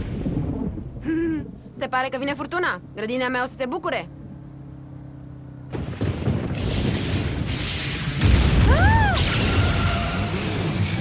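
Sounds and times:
thunder rumbling: 0:00.0 - 0:01.1, 0:05.7 - 0:11.0
car engine hum inside cabin: 0:00.0 - 0:06.0.

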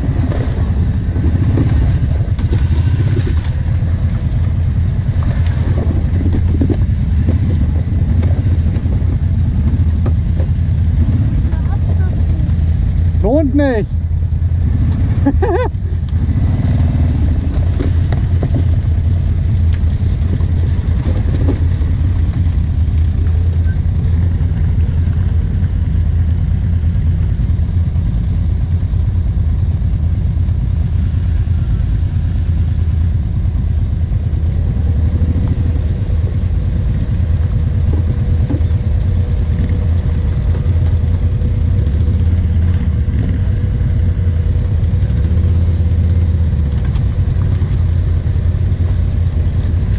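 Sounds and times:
quad engine low drone: 0:00.0 - 0:49.9.

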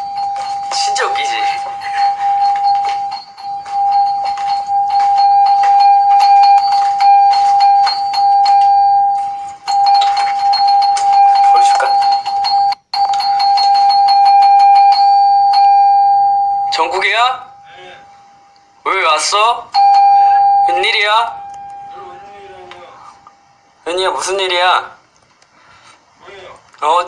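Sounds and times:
doorbell ringing high tone: 0:00.0 - 0:18.4, 0:19.8 - 0:22.6.

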